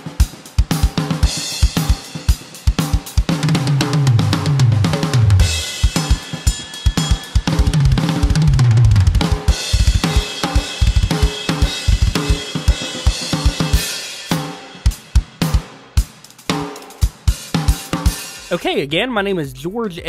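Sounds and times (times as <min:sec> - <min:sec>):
tom drum fills: 0:00.0 - 0:20.0
fast bass drum strokes: 0:00.6 - 0:18.9
crashing cymbals: 0:05.4 - 0:08.4.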